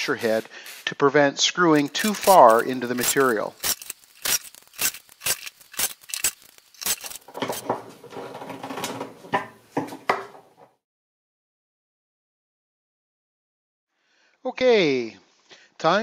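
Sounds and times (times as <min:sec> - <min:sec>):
screws rattling in plastic tub: 0:01.7 - 0:09.3.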